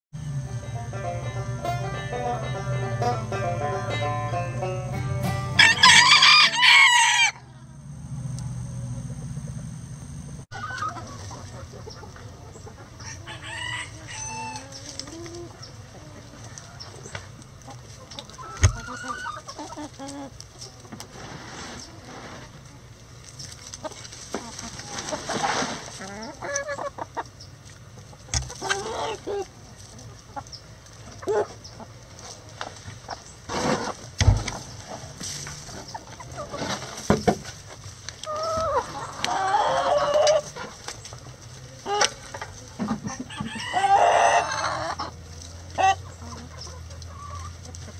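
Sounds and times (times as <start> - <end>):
hens clucking: 0.4 - 7.7, 10.5 - 47.9
rooster crowing: 5.6 - 7.5, 13.0 - 14.7, 43.2 - 45.0
dull thump: 34.2 - 34.6.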